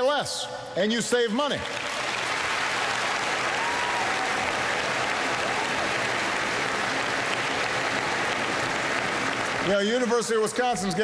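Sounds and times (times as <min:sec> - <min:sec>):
audience applauding: 0:01.6 - 0:10.2.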